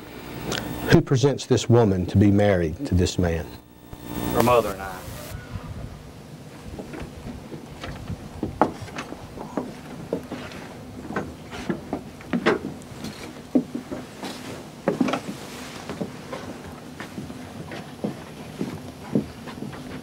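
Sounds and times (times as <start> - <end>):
footsteps and shuffling on platform: 6.7 - 20.0.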